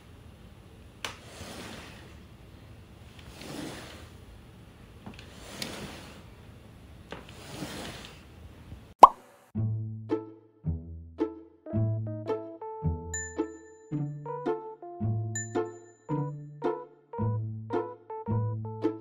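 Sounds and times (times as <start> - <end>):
children's jingle: 11.7 - 19.0.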